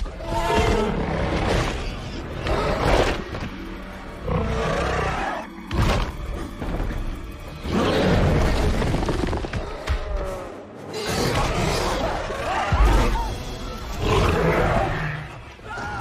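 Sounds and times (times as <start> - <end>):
dramatic score music: 0.0 - 16.0
dinosaur roars: 13.9 - 15.4.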